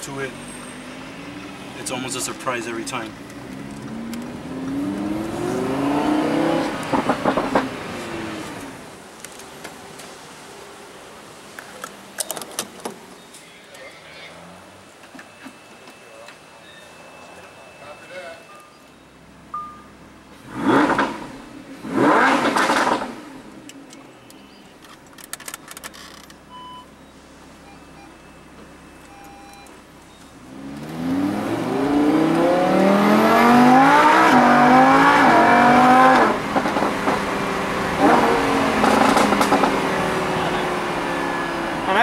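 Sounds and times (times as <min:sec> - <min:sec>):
car engine revving and accelerating: 0:00.1 - 0:08.8, 0:20.4 - 0:23.6, 0:30.4 - 0:42.0.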